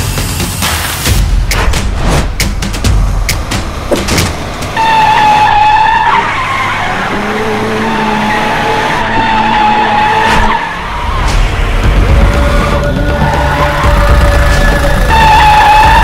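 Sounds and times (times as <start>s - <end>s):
tyres screeching: 3.8s - 16.0s.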